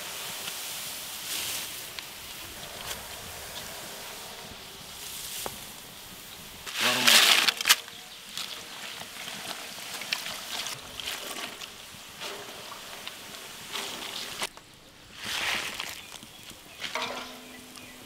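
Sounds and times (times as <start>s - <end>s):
chillies sizzling in hot oil: 8.1s - 14.5s
fried chillies tipped onto tray: 16.8s - 17.5s.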